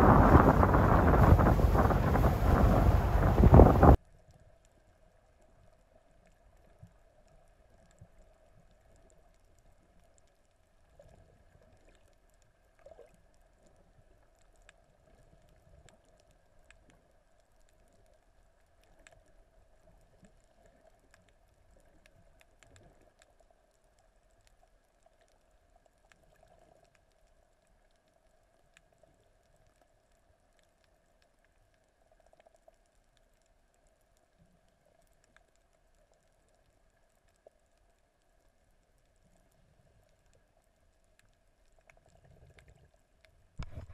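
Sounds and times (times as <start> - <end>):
muffled underwater sound: 0.0 - 4.6
faint clicks and knocks: 6.2 - 43.9.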